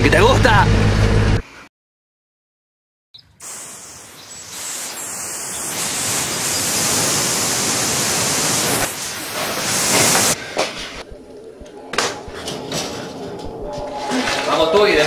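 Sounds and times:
steady rushing hiss: 0:03.4 - 0:14.7.

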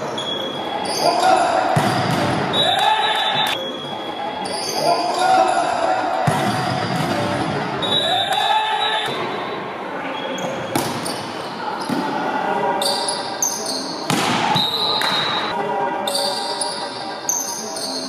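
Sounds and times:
echoing voices: 0:00.0 - 0:18.0
volleyball strikes: 0:01.7 - 0:03.5, 0:06.2 - 0:07.6, 0:10.7 - 0:11.2, 0:14.1 - 0:15.5
shoes squeaking on court: 0:10.2 - 0:12.0, 0:12.8 - 0:14.0.

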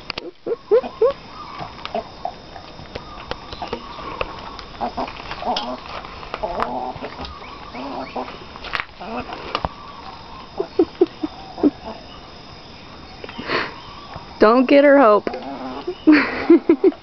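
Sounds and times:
hen short rising calls: 0:00.0 - 0:14.6
hen clucking: 0:00.2 - 0:02.4, 0:03.0 - 0:08.4.

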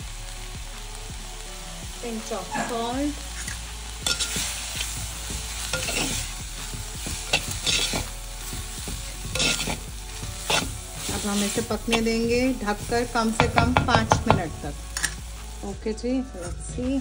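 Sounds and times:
vegetables sizzling in oil: 0:00.0 - 0:17.0
steel spoon scraping a pot: 0:04.0 - 0:04.4, 0:05.7 - 0:08.2, 0:09.2 - 0:12.2.

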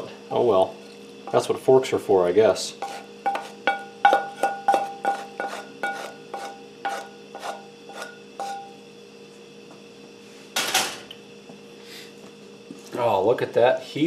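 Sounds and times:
spatula knocking on metal skillet: 0:02.8 - 0:08.8.

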